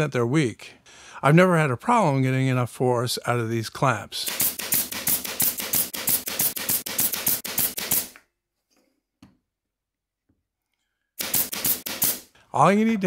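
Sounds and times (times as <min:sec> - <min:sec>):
pin nailer firing: 0:04.3 - 0:08.2, 0:11.2 - 0:12.3.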